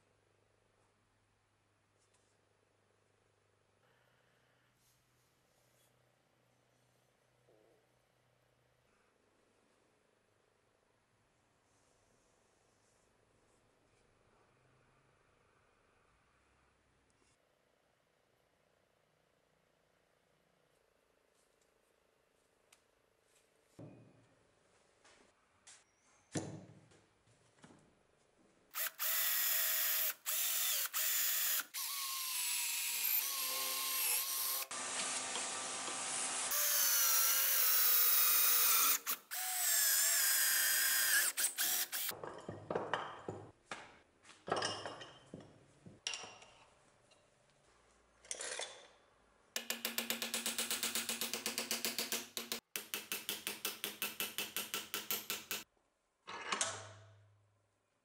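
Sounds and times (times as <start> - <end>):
electric drill boring wood: 28.8 - 42.1.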